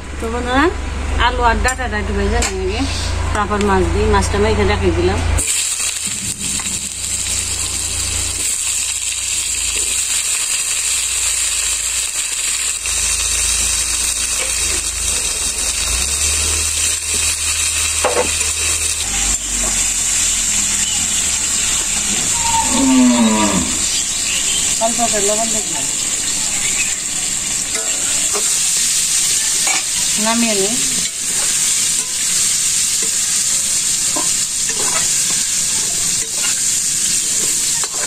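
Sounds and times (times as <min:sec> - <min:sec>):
steady high hiss: 0:05.4 - 0:37.9
cow mooing: 0:21.9 - 0:24.2.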